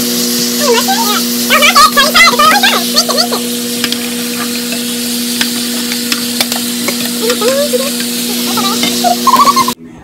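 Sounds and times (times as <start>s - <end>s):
vegetables sizzling in pans: 0.0s - 9.8s
spatula scraping pan: 2.2s - 9.8s.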